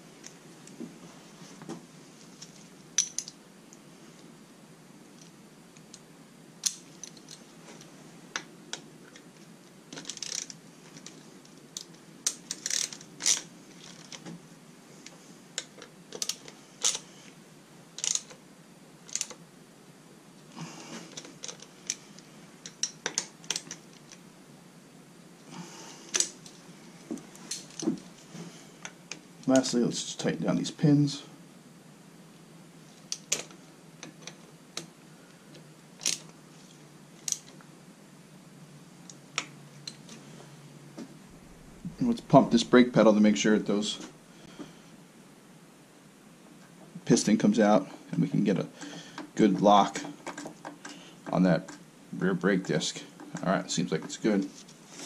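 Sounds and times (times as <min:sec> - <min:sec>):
small metal clicks and clinks: 0:02.5 - 0:03.4.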